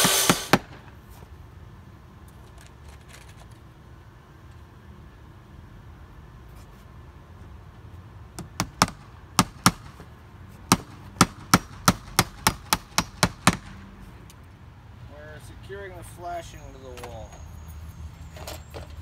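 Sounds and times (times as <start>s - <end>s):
hammer strikes: 0.0s - 0.7s, 8.4s - 10.0s, 10.7s - 13.8s.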